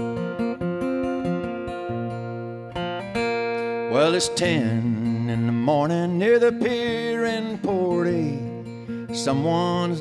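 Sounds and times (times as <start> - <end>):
acoustic guitar strumming: 0.0 - 10.0.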